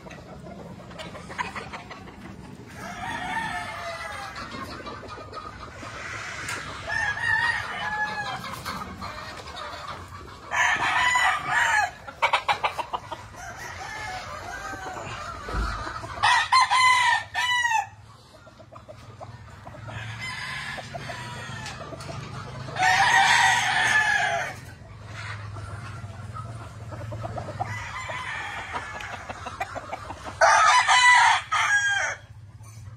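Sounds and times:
distant roosters crowing: 0.0 - 4.8, 5.8 - 18.6, 19.4 - 32.5
rooster crowing loudly: 2.8 - 4.2, 6.9 - 8.4, 10.5 - 12.0, 13.4 - 15.1, 16.2 - 18.0, 22.8 - 24.6, 30.4 - 32.2.

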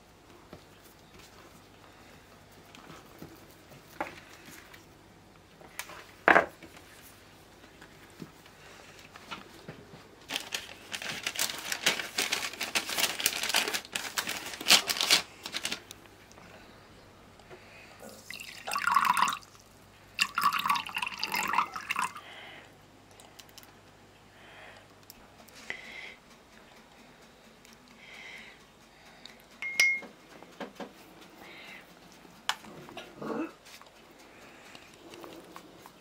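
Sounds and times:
handling rustling and clicking: 9.0 - 16.4
oil pouring into porcelain cup: 18.1 - 19.5, 20.2 - 22.2.

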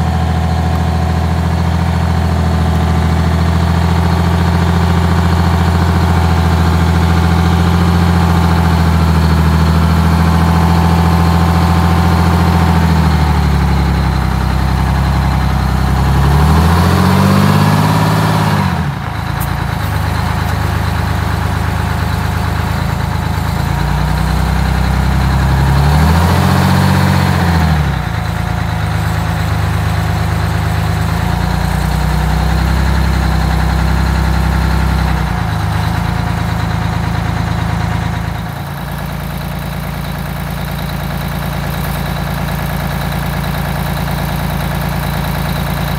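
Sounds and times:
diesel bus engine running: 0.0 - 45.9.

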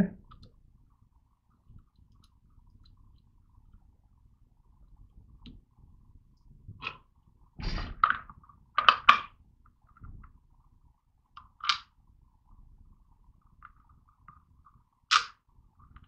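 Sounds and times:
sharp clicks and knocks: 15.1 - 15.4.

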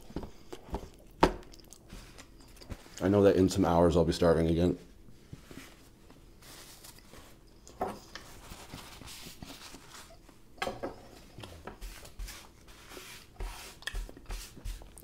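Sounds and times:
paper napkin rustling: 4.8 - 10.4.

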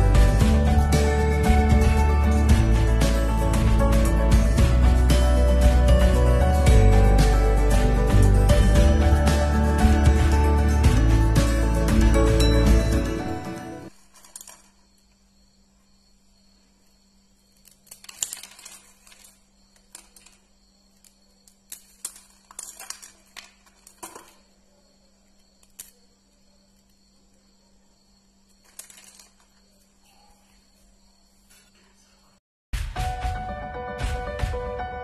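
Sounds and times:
crisps crackling and snapping: 17.6 - 20.4, 21.0 - 24.4.

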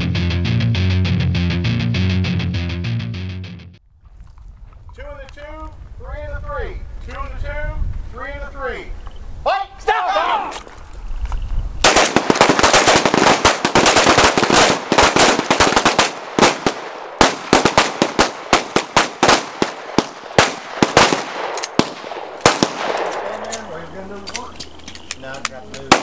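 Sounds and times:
rapid pistol fire: 11.8 - 23.3.

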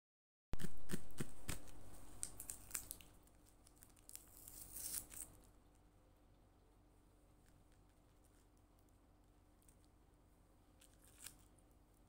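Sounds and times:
taped paper crinkling: 0.6 - 5.6, 10.8 - 11.6.

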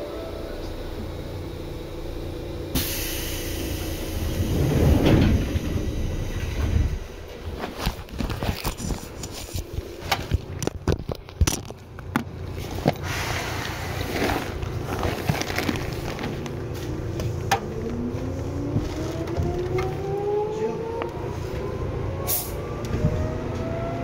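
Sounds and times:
low steady train hum: 0.0 - 24.0
rumble: 0.0 - 24.0
train doors hissing open: 2.7 - 7.2.

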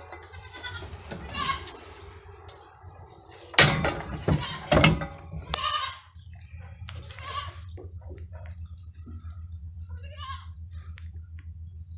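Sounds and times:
bleating animal calls: 0.1 - 1.8, 5.4 - 7.7, 9.8 - 10.6.

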